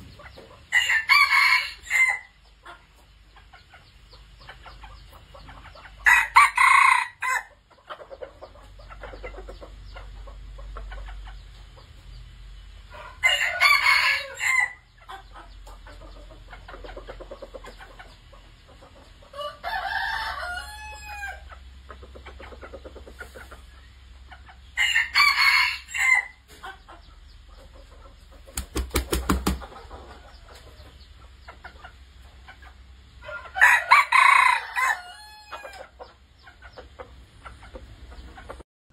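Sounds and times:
rooster crowing: 0.7s - 2.3s, 6.0s - 7.5s, 13.2s - 14.8s, 19.4s - 21.4s, 24.8s - 26.4s, 33.3s - 35.8s.

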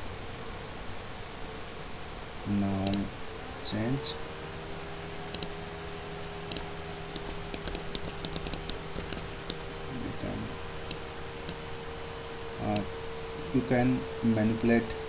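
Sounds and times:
faint hum: 0.0s - 15.0s
computer mouse clicks: 2.8s - 3.1s, 5.3s - 5.6s, 6.5s - 9.6s, 10.9s - 11.6s.

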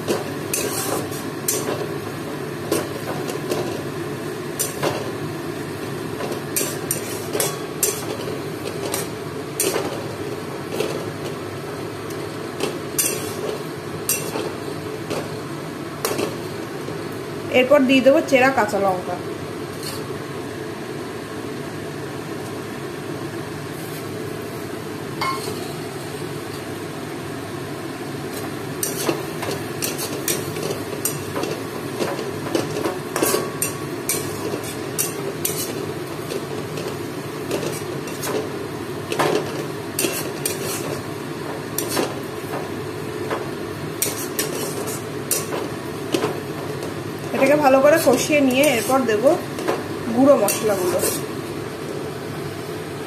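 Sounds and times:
low hiss of frying: 0.0s - 53.0s
spatula scraping a metal pan: 0.1s - 1.7s, 6.6s - 8.2s, 33.2s - 35.8s, 39.4s - 41.0s, 44.0s - 45.6s, 50.5s - 51.3s.

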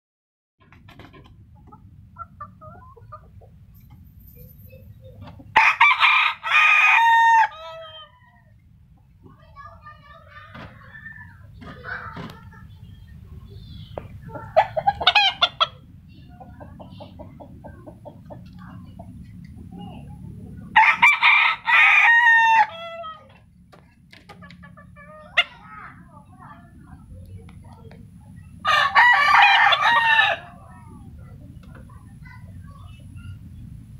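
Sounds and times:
rooster crowing: 5.6s - 8.4s, 20.8s - 23.3s, 28.6s - 30.6s.

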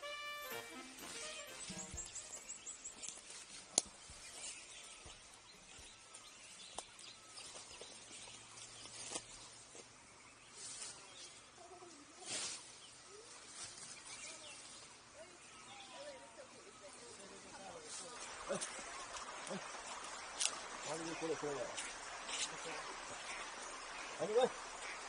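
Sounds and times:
faint bird calls: 18.0s - 25.0s
small ticks: 18.6s - 20.6s.

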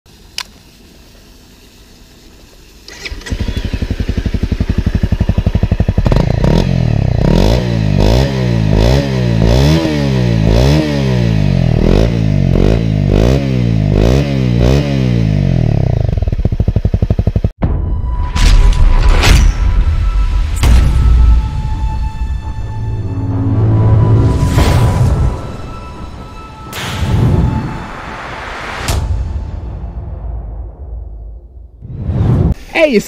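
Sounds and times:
motorcycle engine starting and revving: 0.1s - 17.6s.

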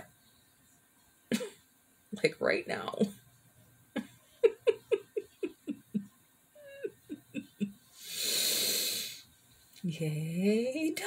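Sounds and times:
woman laughing: 4.0s - 7.8s
loud breathy rush of noise: 7.9s - 9.3s.

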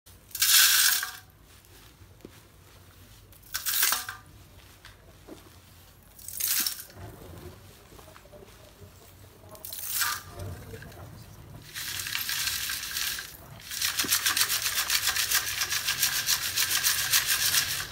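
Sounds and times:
earth pieces rattling in metal sieve: 0.2s - 1.3s, 3.4s - 4.2s, 6.2s - 7.0s, 9.6s - 11.0s, 11.6s - 17.9s.

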